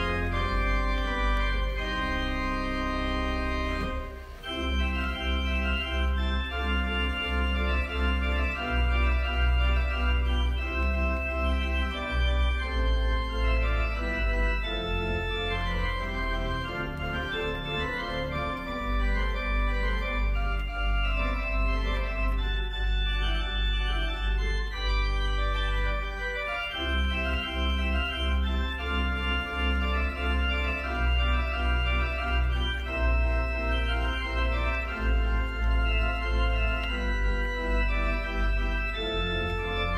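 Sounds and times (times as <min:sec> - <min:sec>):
church organ chords: 0:00.0 - 0:39.9.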